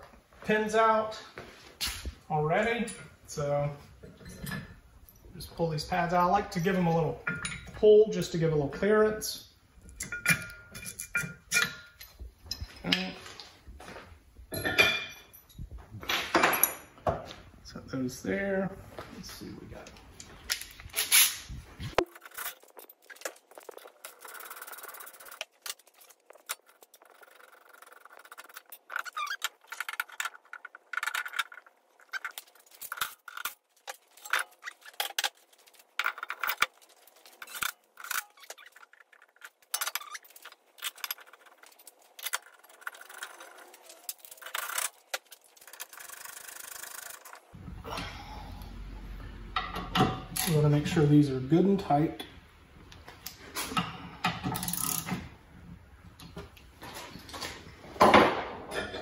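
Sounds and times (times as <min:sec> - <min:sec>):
metallic clinks and scrapes: 0:04.0 - 0:05.4, 0:09.8 - 0:13.4, 0:20.5 - 0:47.5, 0:54.4 - 0:55.2.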